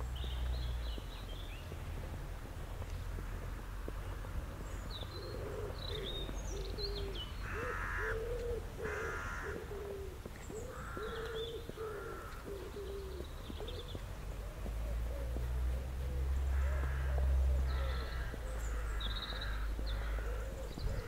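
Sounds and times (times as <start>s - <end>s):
songbirds chirping: 0.0s - 21.0s
pigeon cooing: 5.2s - 18.6s, 20.0s - 21.0s
crow cawing: 7.4s - 9.9s, 10.6s - 12.8s, 16.5s - 21.0s.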